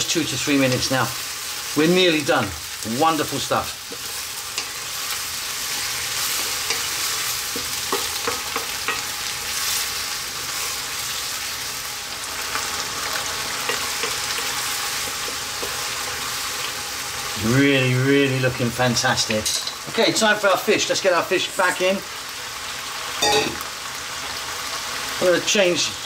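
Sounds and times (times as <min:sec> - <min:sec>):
vegetables sizzling in a wok: 0:00.0 - 0:26.0
spatula knocking against pan: 0:07.5 - 0:09.0.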